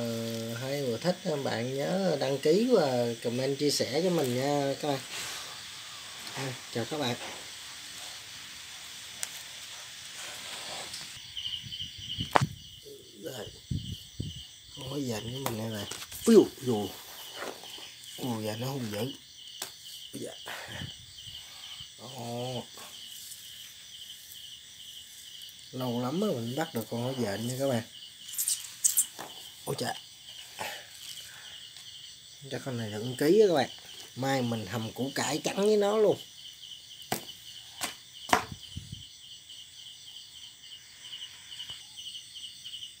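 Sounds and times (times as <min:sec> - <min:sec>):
crickets chirping: 0:00.0 - 0:43.0
short rustle: 0:09.1 - 0:11.2.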